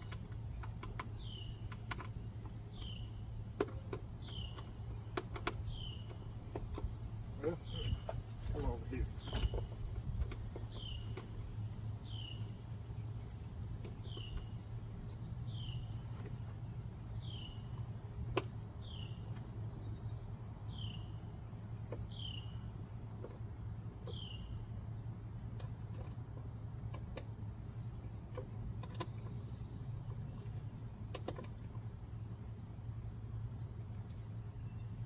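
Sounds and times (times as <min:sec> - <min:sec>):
small clicks and taps: 0:00.0 - 0:07.0, 0:17.7 - 0:18.6, 0:21.8 - 0:22.1, 0:23.1 - 0:24.2, 0:25.4 - 0:31.9
bird chirping: 0:00.0 - 0:23.4, 0:24.0 - 0:25.1, 0:33.6 - 0:35.0
steady low hum: 0:00.0 - 0:35.0.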